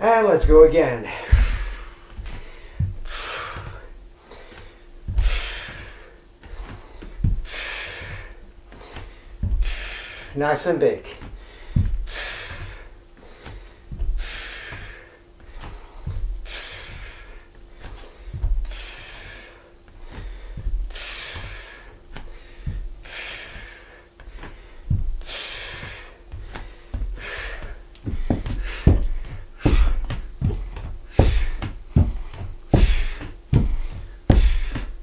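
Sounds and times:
thumps on wooden floor: 0.4 - 3.8, 6.5 - 8.3, 9.0 - 9.8, 11.2 - 12.8, 24.4 - 35.0
hands thumping on floor: 0.4 - 3.9, 5.0 - 8.3, 8.9 - 9.8, 11.2 - 12.8, 13.4 - 17.2, 23.5 - 35.0
man breathing hard: 0.5 - 10.4, 11.2 - 35.0.

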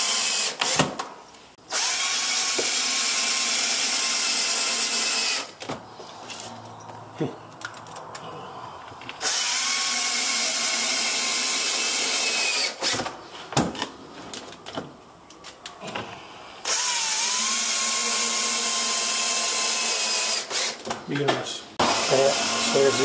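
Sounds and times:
cordless drill running: 0.0 - 0.8, 1.7 - 5.5, 9.2 - 13.0, 16.6 - 20.8, 21.8 - 23.0.

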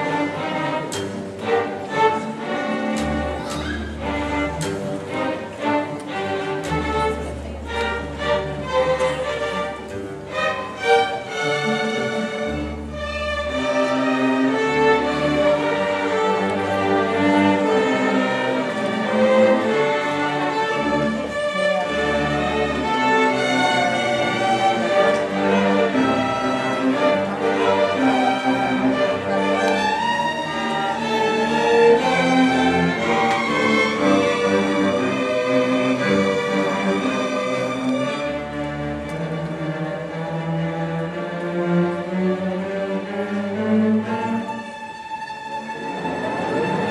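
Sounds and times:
double basses low notes: 0.0 - 37.0
string orchestra playing: 0.0 - 46.9.

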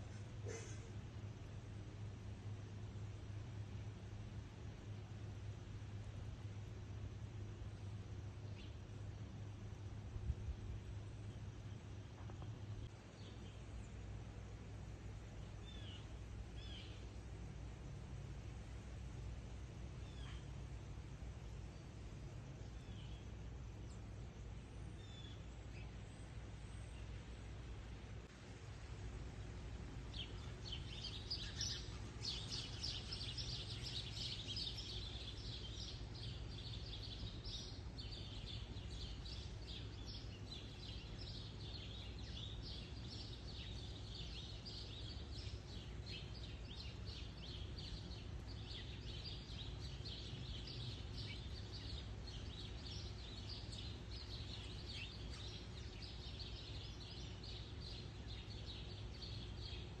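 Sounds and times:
low background rumble: 0.0 - 60.0
birds chirping: 19.9 - 28.0, 29.6 - 60.0.

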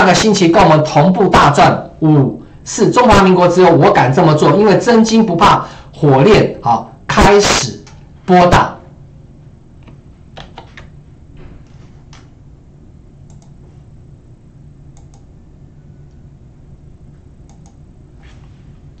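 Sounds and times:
low steady hum: 0.0 - 19.0
computer keyboard clicks: 9.8 - 10.9, 13.3 - 13.6, 14.9 - 15.3, 17.5 - 17.8.

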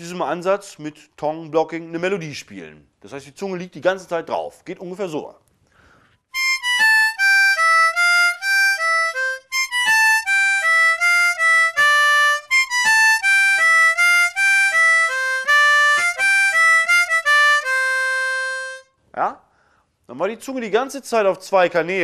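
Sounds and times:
breaths: 5.6 - 6.3, 19.4 - 20.0
harmonica melody: 6.2 - 19.0.

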